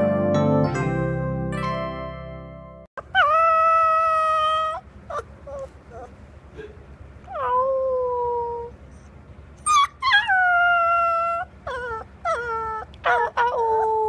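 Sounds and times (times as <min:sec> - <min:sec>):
puppy howling: 0:03.0 - 0:06.2, 0:07.3 - 0:08.8, 0:09.6 - 0:14.0
puppy yipping: 0:03.0 - 0:06.2, 0:07.3 - 0:08.7, 0:09.6 - 0:14.0.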